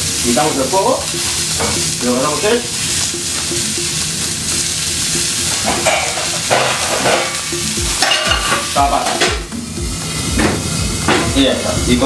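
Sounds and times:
fish sizzling in a frying pan: 0:00.0 - 0:12.0.

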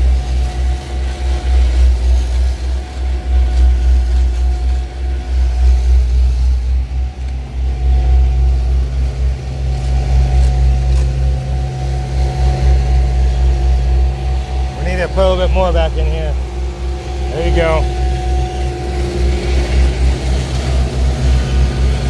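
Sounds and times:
engine idling rumble: 0:00.0 - 0:22.0
rakes scraping asphalt: 0:00.0 - 0:22.0.

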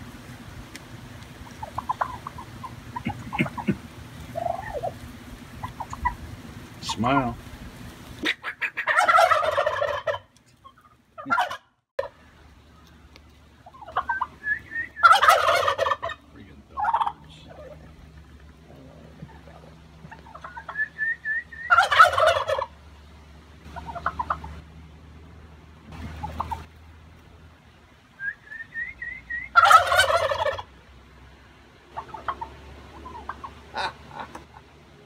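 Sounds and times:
soft turkey calls: 0:00.7 - 0:24.6, 0:25.9 - 0:26.8, 0:28.2 - 0:30.8, 0:31.9 - 0:34.8
turkeys gobbling: 0:00.7 - 0:24.6, 0:25.8 - 0:26.8, 0:28.2 - 0:31.0, 0:31.8 - 0:35.0.

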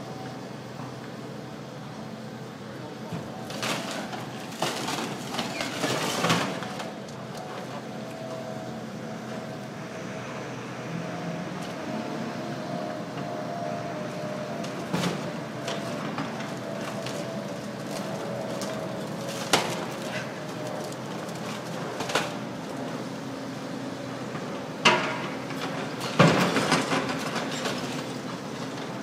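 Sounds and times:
excavator running with whine: 0:00.0 - 0:29.0
knocks and clatter of rubble: 0:03.4 - 0:06.9, 0:15.0 - 0:22.4, 0:24.9 - 0:28.1.

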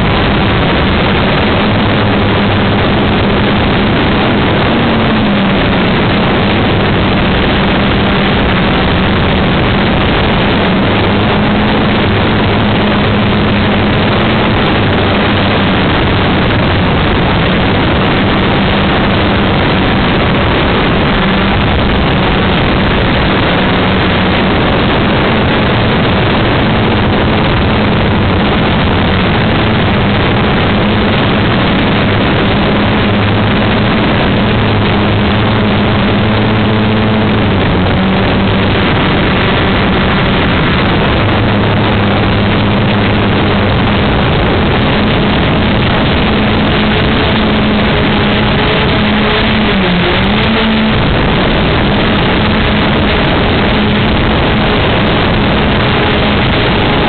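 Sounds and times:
wind rush on microphone: 0:00.0 - 0:57.0
quadcopter propellers droning: 0:25.4 - 0:57.0.

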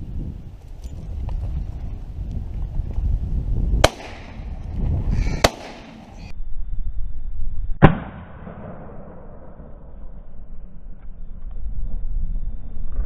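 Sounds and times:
wind rumbling on microphone: 0:00.0 - 0:07.9, 0:08.5 - 0:13.0
shotgun shots: 0:03.8 - 0:04.5, 0:05.4 - 0:06.2, 0:07.8 - 0:09.2.

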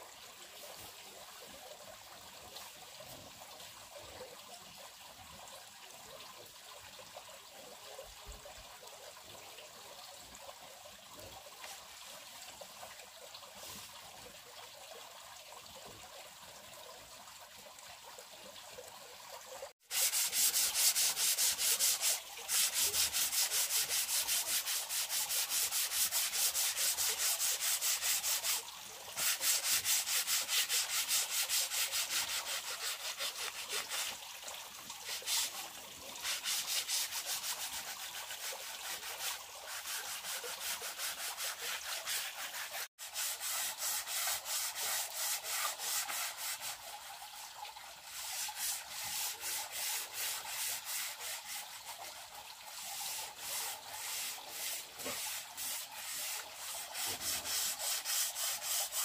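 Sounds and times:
sandpaper rubbing on wood: 0:19.9 - 0:28.6, 0:29.2 - 0:34.2, 0:35.1 - 0:35.6, 0:36.2 - 0:46.9, 0:48.2 - 0:51.8, 0:52.8 - 0:59.0.

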